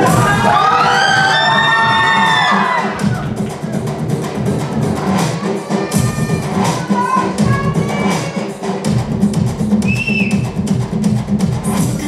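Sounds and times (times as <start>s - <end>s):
audience cheering and shouting: 0.0s - 9.0s
film dance music over speakers: 0.0s - 12.0s.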